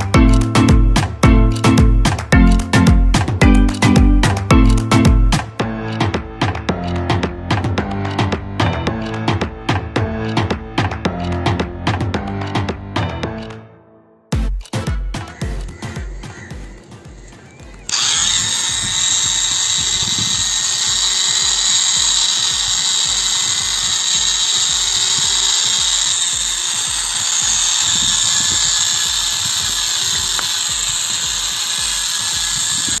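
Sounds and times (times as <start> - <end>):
toy wheels on concrete: 15.7 - 33.0
toy motor whining: 16.1 - 33.0.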